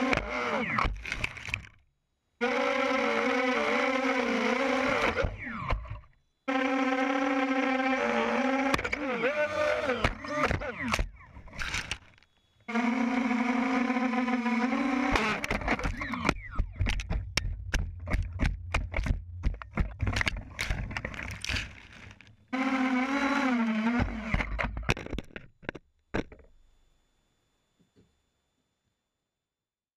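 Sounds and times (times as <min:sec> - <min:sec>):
quadcopter motors whining: 0:00.0 - 0:01.8, 0:02.4 - 0:17.4, 0:20.0 - 0:25.0
sharp knocks and clatter: 0:15.4 - 0:22.2.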